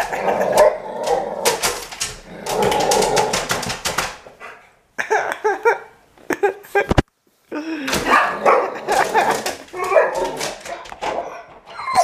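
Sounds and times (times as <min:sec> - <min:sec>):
dog whining yelps: 0:11.2 - 0:12.0.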